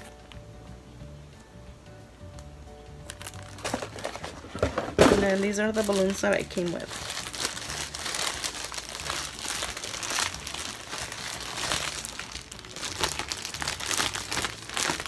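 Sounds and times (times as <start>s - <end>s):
balloon packaging crinkling: 3.0s - 15.0s.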